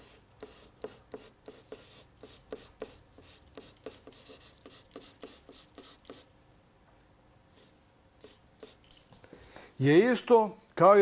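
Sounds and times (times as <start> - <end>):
pen scratching on paper: 0.0 - 6.3, 7.6 - 8.8.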